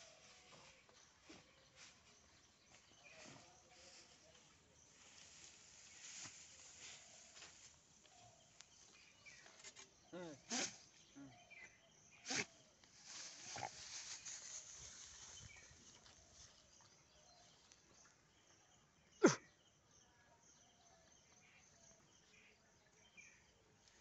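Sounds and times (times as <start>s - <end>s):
straw and leaves rustling: 0.0s - 10.1s, 12.4s - 17.8s.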